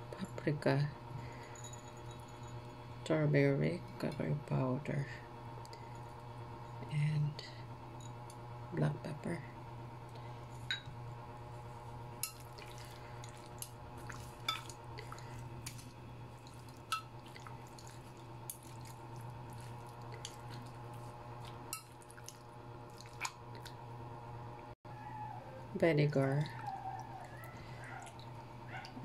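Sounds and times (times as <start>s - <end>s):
steady low hum: 0.0s - 29.0s
wet squishing of meat: 12.2s - 23.8s.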